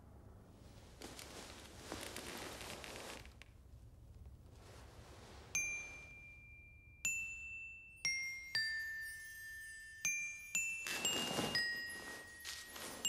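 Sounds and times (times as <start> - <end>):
faint hiss: 0.0 - 13.0
high chime notes ringing: 5.6 - 13.0.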